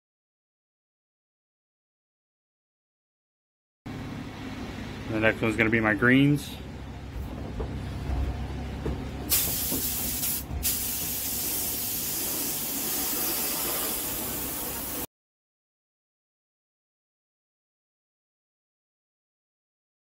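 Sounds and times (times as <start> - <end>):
air spray gun hissing: 9.3 - 15.1.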